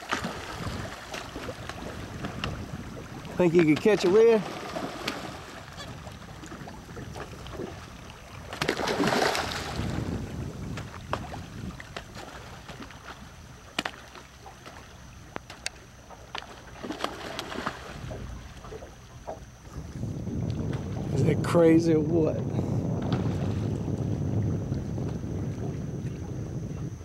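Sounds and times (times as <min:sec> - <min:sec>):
wind rumble on microphone: 0:00.0 - 0:13.7, 0:16.8 - 0:27.0
fish splashing at water surface: 0:08.5 - 0:09.9.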